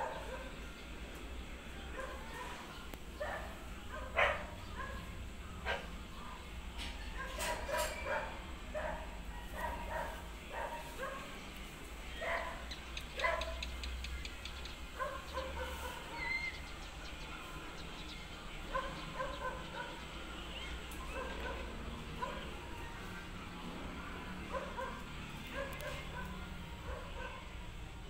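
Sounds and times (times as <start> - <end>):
small dogs yipping and barking: 0.0 - 0.7, 1.9 - 11.4, 12.1 - 13.9, 14.9 - 16.7, 18.6 - 23.2, 24.4 - 27.9.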